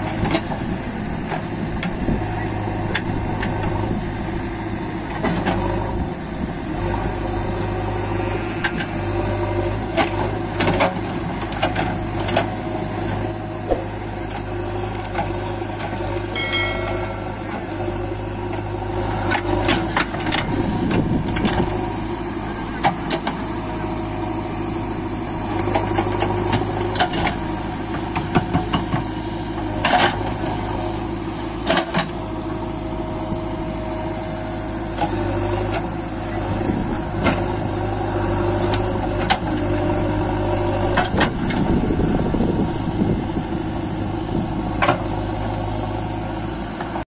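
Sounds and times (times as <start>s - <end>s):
diesel engine running: 0.0s - 47.0s
bucket and boom clanks: 13.7s - 14.2s
backhoe digging soil: 25.4s - 47.0s.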